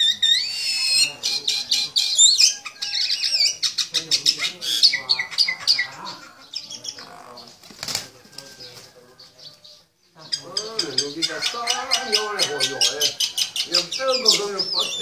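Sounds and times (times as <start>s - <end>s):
small bird chirping shrilly: 0.0s - 5.9s.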